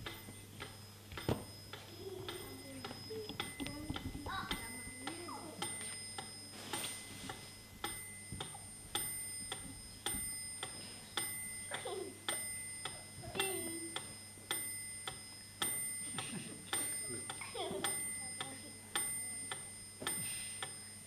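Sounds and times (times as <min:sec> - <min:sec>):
clock ticking: 0:00.0 - 0:21.0.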